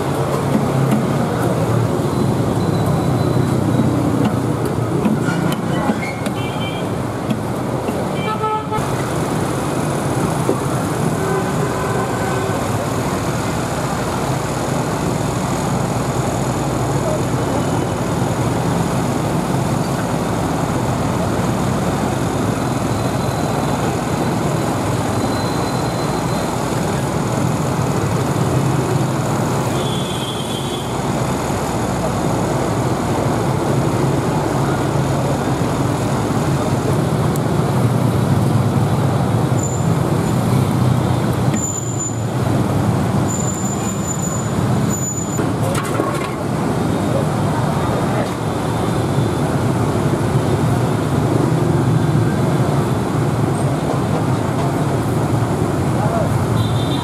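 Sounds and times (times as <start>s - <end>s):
car engines passing: 0.0s - 8.2s, 8.8s - 56.8s
motorbike engines passing: 0.0s - 8.2s.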